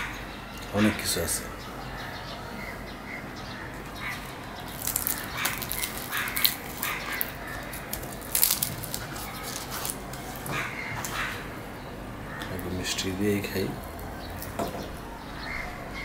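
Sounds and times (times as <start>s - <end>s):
crisp fried bread tearing: 4.1s - 10.7s.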